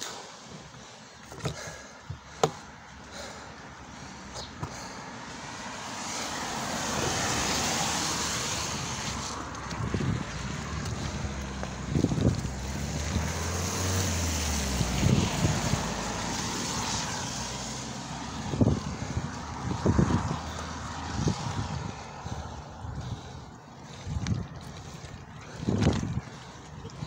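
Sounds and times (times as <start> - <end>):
tyres hissing on wet pavement: 3.2 - 24.0
wind on microphone: 7.0 - 27.0.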